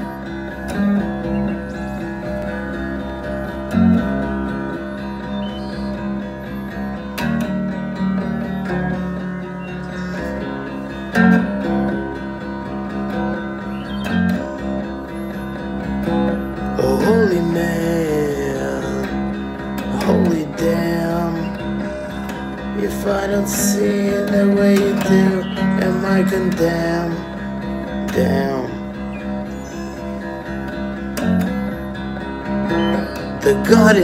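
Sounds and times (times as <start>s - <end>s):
electric guitar chords: 0.0s - 34.0s.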